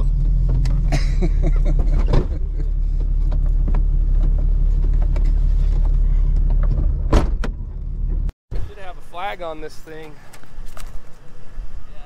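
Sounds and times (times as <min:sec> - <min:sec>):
rattles and knocks over bumps: 0:00.0 - 0:08.3
vehicle engine droning: 0:00.0 - 0:09.1
sharp thump: 0:06.7 - 0:07.7.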